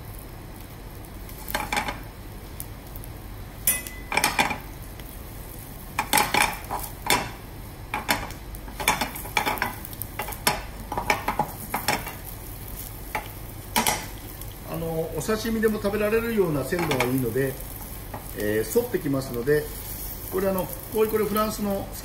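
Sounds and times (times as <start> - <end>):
fish sizzling in a pan: 0.0 - 22.0
metal spatula clinking on pan: 3.6 - 4.5.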